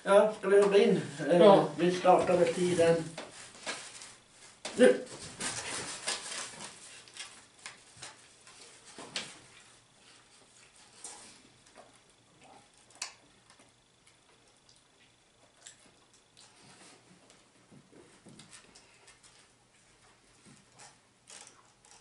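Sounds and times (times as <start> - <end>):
people chewing: 9.5 - 22.0.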